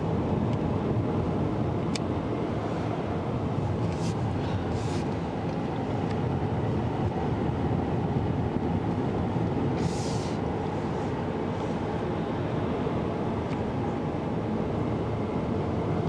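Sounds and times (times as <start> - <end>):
car engine and tyre noise: 0.0 - 16.0
short hissing rushes: 9.8 - 10.4.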